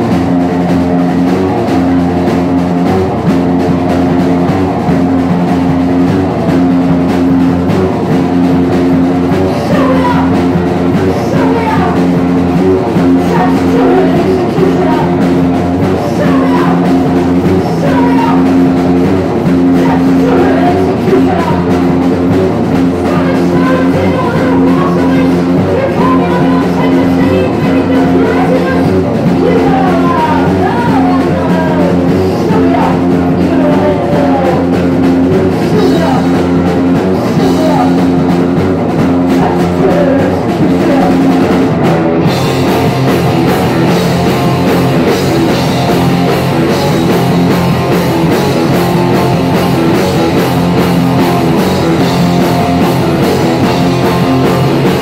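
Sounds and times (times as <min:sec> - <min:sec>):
punk rock band playing: 0:00.0 - 0:55.0
person singing: 0:09.3 - 0:22.0, 0:22.9 - 0:38.5, 0:39.3 - 0:42.7.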